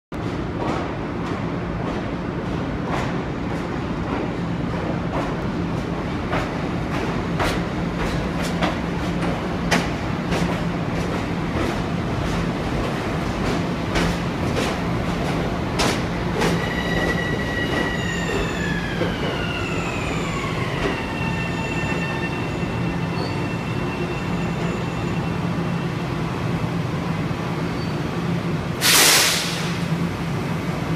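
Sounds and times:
train wheels clicking over rail joints: 0.2s - 17.1s
loud air hiss: 28.8s - 30.0s.

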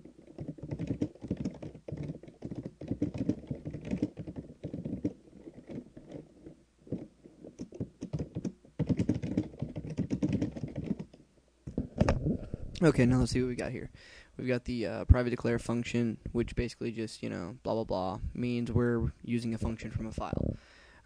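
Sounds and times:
typing on computer keyboard: 0.0s - 11.2s.

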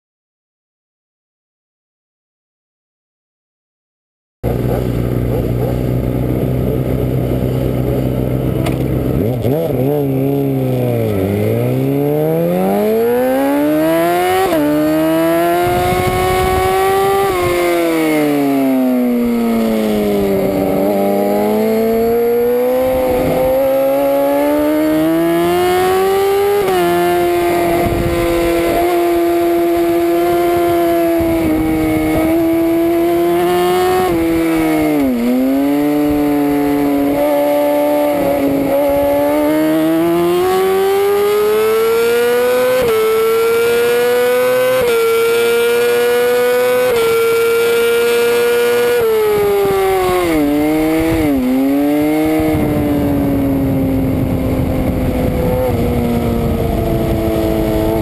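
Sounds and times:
motorcycle engine revving: 4.4s - 58.0s.

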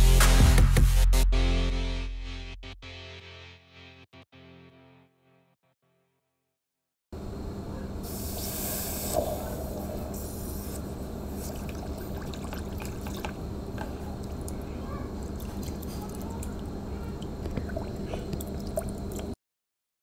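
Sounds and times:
water fizzing and sloshing in bucket: 11.3s - 19.4s.

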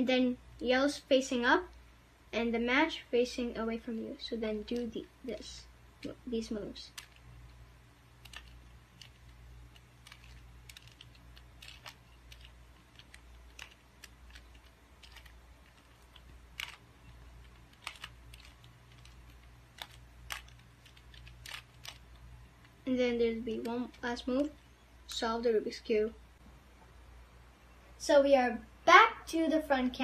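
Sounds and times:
puzzle cube plastic clicks: 6.0s - 22.8s.

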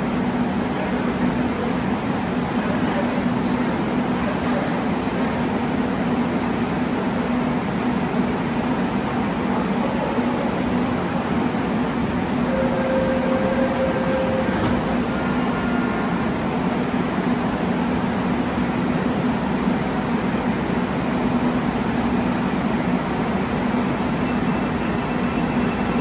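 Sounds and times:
train equipment humming: 0.1s - 26.0s
short steady tone: 12.5s - 16.1s.

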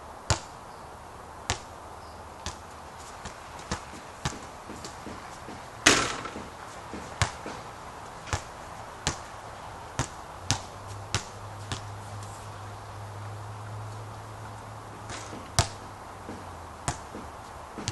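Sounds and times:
basketball bouncing on court: 2.4s - 2.6s, 3.2s - 9.3s, 10.0s - 11.9s, 15.0s - 17.9s
basketball clanging off hoop: 4.3s - 7.7s, 15.0s - 17.9s.

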